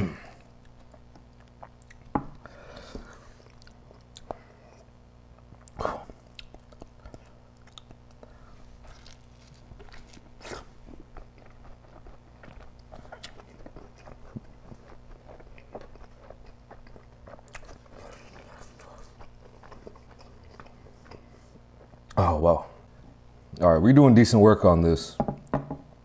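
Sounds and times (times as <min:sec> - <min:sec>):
chewing and biting food: 0:00.4 - 0:02.4, 0:03.3 - 0:04.5, 0:05.4 - 0:22.2.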